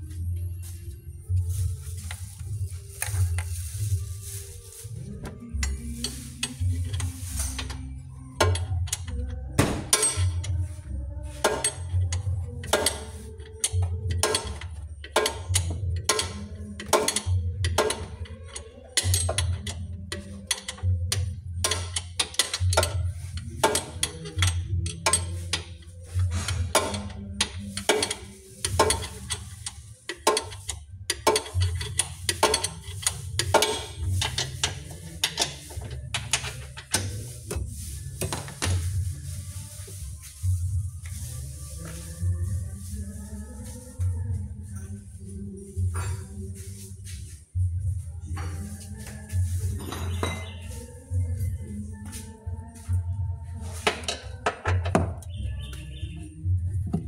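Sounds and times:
metallic wrench clicks and knocks: 0:11.6 - 0:23.0, 0:26.8 - 0:37.1.

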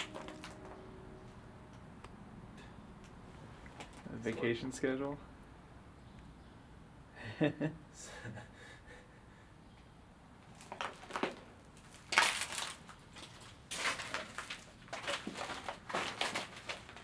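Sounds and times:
footsteps crunching over debris: 0:00.0 - 0:00.8, 0:10.5 - 0:17.0.

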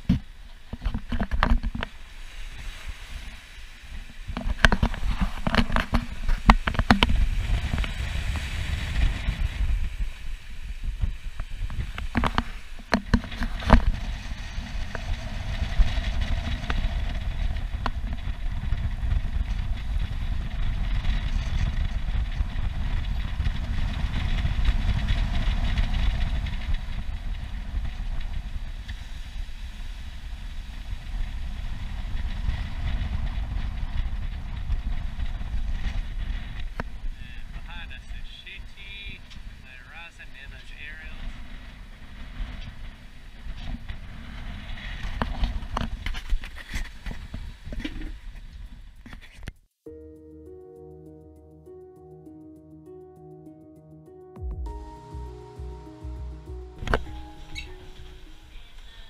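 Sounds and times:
water rushing along hulls: 0:00.0 - 0:34.0
wind buffeting microphone: 0:00.0 - 0:39.8, 0:40.8 - 0:49.2.

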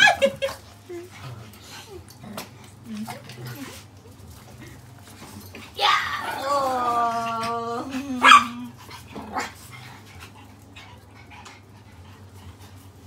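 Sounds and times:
small dog barking: 0:08.2 - 0:08.7.

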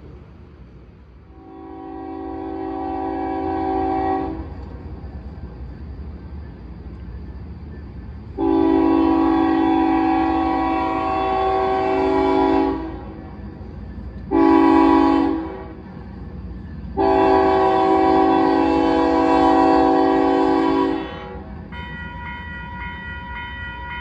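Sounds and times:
locomotive air horn blasts: 0:01.3 - 0:04.6, 0:08.4 - 0:13.2, 0:14.3 - 0:15.8, 0:17.0 - 0:22.2.

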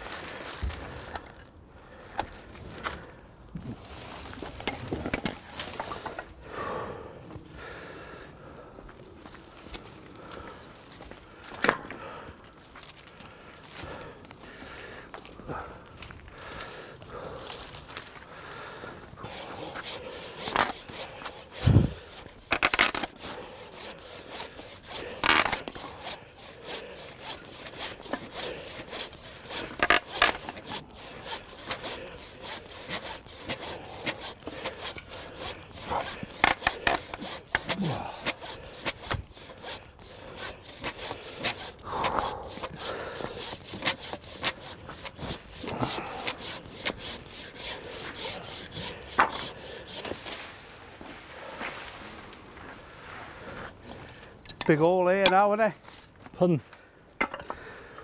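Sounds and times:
hand saw cutting wood: 0:19.2 - 0:50.4.

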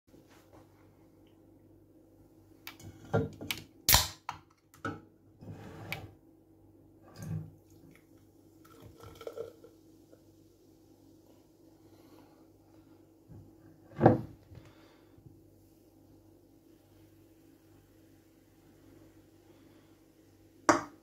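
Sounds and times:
beer pouring into a glass: 0:07.2 - 0:10.3.

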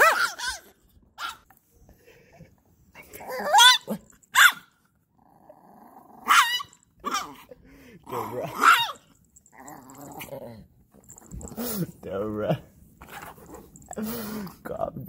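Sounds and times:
small dog high-pitched barks: 0:00.0 - 0:01.4, 0:03.3 - 0:04.7, 0:06.2 - 0:07.4, 0:08.6 - 0:09.0
small dog growling: 0:05.2 - 0:06.4, 0:07.0 - 0:12.0.

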